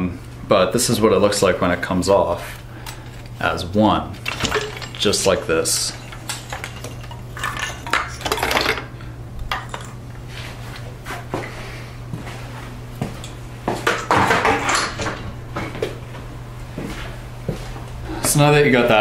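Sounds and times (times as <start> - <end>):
steady low hum: 0.0 - 19.0
metal parts clanking and rattling: 4.1 - 8.9, 9.5 - 10.0, 13.9 - 15.3.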